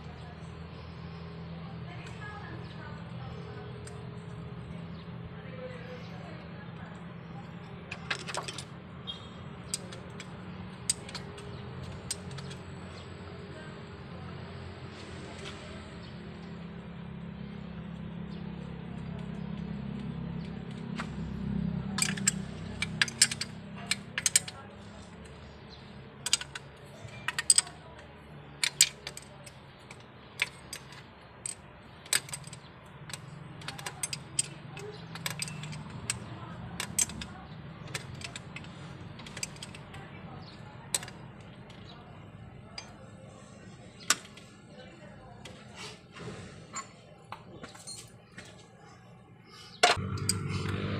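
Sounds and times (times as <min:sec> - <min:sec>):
metal tools clicking and tapping: 0:03.4 - 0:04.0, 0:07.4 - 0:13.1, 0:20.0 - 0:44.5, 0:49.8 - 0:50.8.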